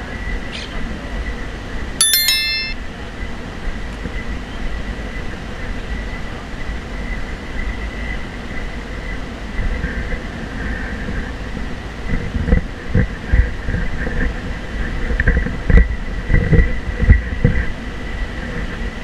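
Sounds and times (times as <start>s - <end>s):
faint high tone: 2.0s - 2.8s.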